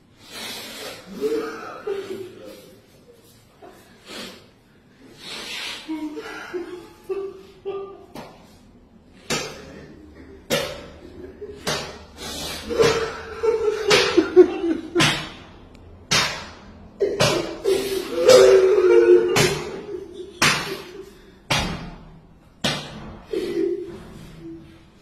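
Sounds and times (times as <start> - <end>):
sharp slaps: 9.2 - 9.8, 10.5 - 11.0, 11.6 - 13.2, 13.9 - 14.3, 14.9 - 17.6, 19.4 - 23.3.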